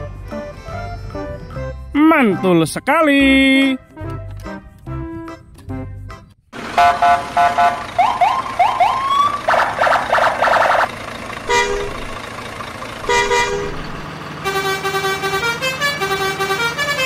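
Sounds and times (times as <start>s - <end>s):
pulsing horn blare: 6.8s - 8.3s, 9.5s - 12.2s, 13.0s - 17.0s
horn notes playing a tune: 11.5s - 12.2s, 13.0s - 17.0s
short horn toots: 11.5s - 12.2s, 13.0s - 17.0s.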